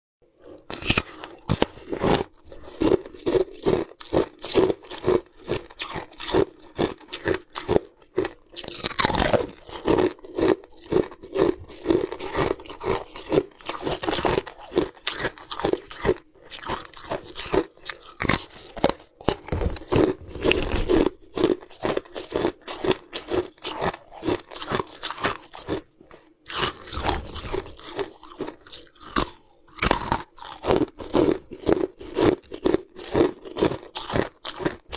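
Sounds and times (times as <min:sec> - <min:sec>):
ice crunching between teeth: 0:00.4 - 0:34.9.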